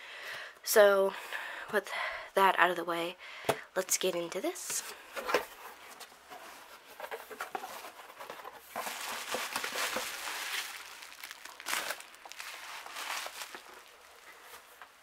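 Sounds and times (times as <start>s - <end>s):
bubble wrap crinkling: 6.7s - 15.0s.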